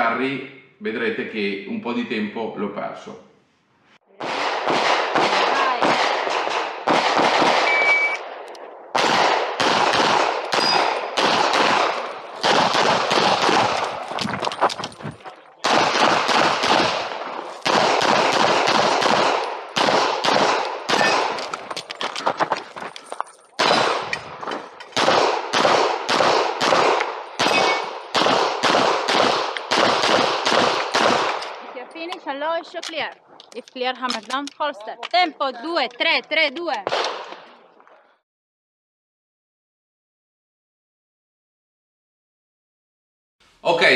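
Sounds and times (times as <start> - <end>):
pistol shots: 4.2 - 14.3, 15.6 - 22.3, 23.6 - 31.8, 36.7 - 37.5.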